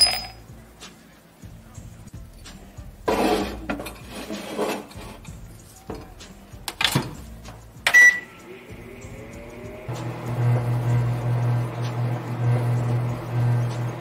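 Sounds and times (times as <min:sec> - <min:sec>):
tray sliding in: 0:03.1 - 0:05.3
keypad beep: 0:07.9 - 0:08.3
faint rising tone: 0:08.0 - 0:13.8.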